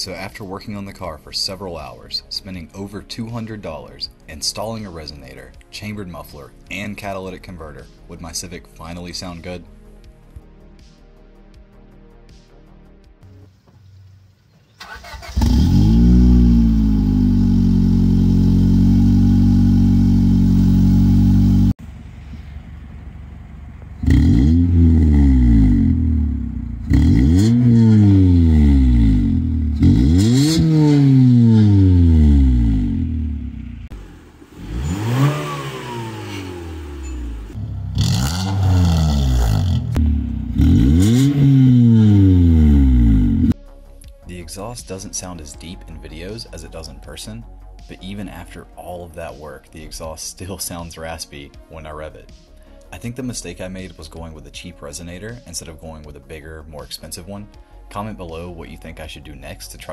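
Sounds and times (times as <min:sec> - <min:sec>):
raspy engine revving: 0:14.8 - 0:21.8, 0:22.4 - 0:43.6
car engine idling: 0:14.8 - 0:43.6.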